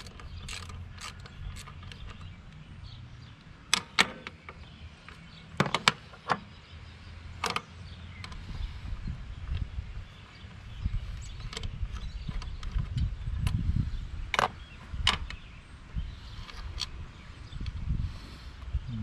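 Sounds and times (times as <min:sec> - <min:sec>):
ratchet clicks: 0:00.0 - 0:02.6.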